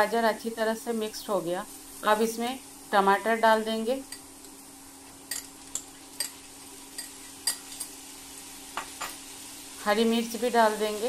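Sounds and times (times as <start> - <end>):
faint steady hum: 0.0 - 11.0
soft sizzle in frying pan: 0.0 - 11.0.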